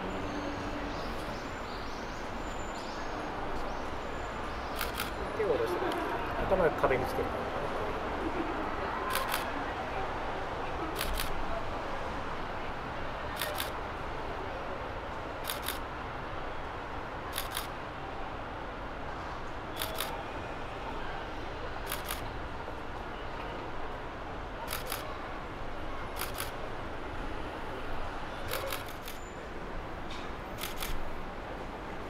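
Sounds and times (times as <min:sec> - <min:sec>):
steady background noise: 0:00.0 - 0:32.0
camera shutter double click: 0:04.8 - 0:05.1, 0:15.4 - 0:15.8, 0:17.3 - 0:17.7, 0:19.8 - 0:20.2, 0:21.9 - 0:22.2, 0:26.2 - 0:26.6, 0:28.5 - 0:29.2, 0:30.6 - 0:31.0.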